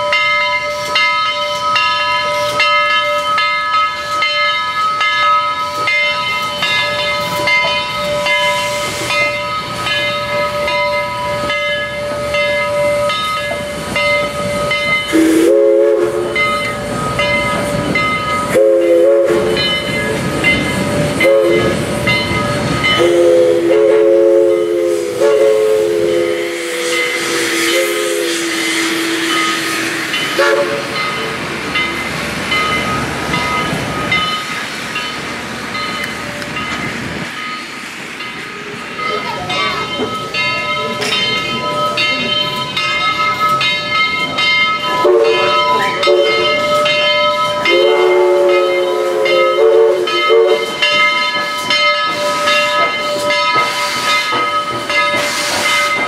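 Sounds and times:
rhythmic metallic ringing: 0.0 - 23.8, 26.1 - 56.0
rumble of train cars: 0.0 - 56.0
train wheels rolling on rails: 0.0 - 56.0
steam whistle blasts: 15.1 - 16.7, 18.4 - 19.9, 21.2 - 21.9, 23.0 - 31.1, 45.0 - 46.6, 47.6 - 50.9.

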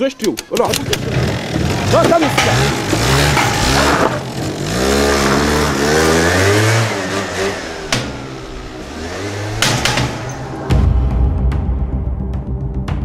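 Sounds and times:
scooter engine revving: 0.6 - 10.8.

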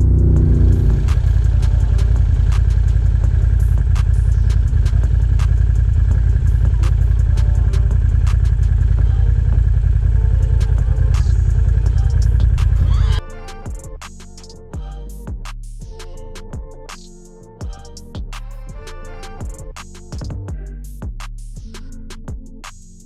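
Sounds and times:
atv engine idling: 0.0 - 13.7.

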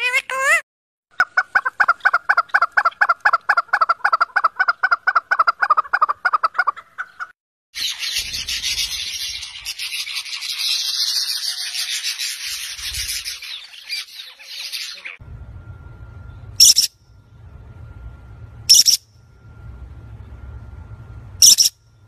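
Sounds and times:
partridge clucking call: 1.1 - 8.2.

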